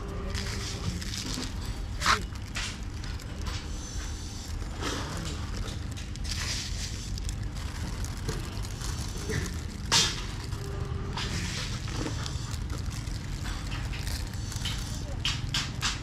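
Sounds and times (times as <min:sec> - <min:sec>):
steady low rumble: 0:00.0 - 0:16.0
seeds rustling and pattering: 0:04.5 - 0:15.5.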